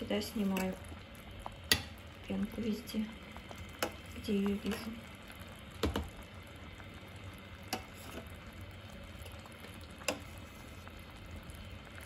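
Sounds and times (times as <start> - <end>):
jam bubbling in a pot: 0.0 - 12.0
metal spoon clicking on pot: 1.7 - 1.9.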